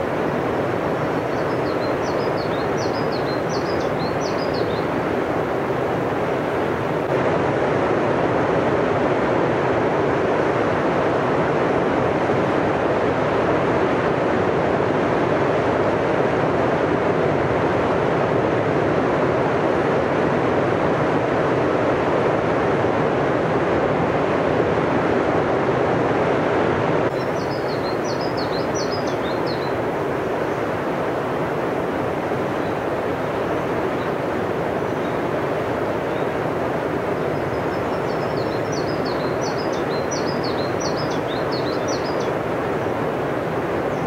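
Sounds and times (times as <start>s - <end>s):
river rushing over rapids: 0.0s - 16.2s, 25.3s - 44.0s
small bird chirping: 1.3s - 4.9s, 27.2s - 29.8s, 37.3s - 42.4s.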